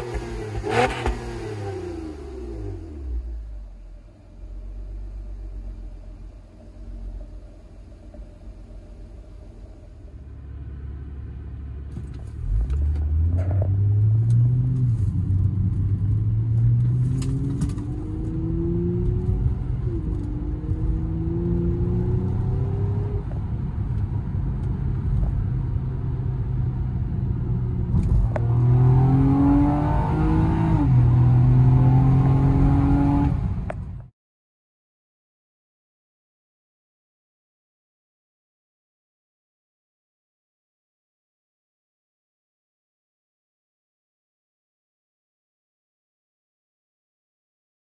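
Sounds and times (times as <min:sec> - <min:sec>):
car engine revving through upshifts: 0:00.0 - 0:03.4, 0:12.3 - 0:23.5, 0:28.0 - 0:33.6.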